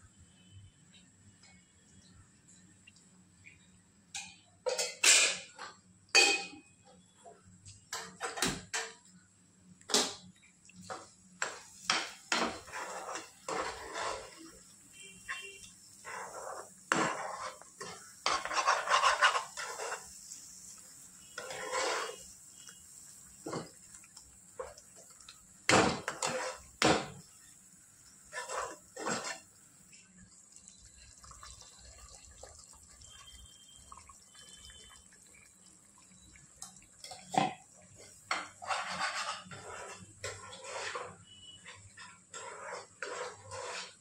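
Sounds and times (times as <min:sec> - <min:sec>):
metal utensils clinking and scraping: 0:04.2 - 0:05.6, 0:11.4 - 0:14.6, 0:15.2 - 0:20.6, 0:21.4 - 0:22.3, 0:38.0 - 0:44.0.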